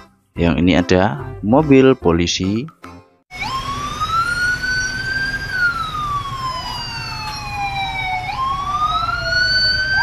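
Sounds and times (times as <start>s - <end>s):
toy siren wailing: 3.3s - 10.0s.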